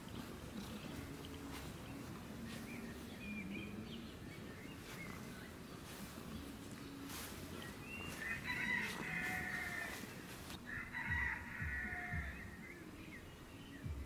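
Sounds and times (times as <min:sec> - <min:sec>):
faint rustling: 0:00.0 - 0:13.6
rooster crowing: 0:08.0 - 0:12.7.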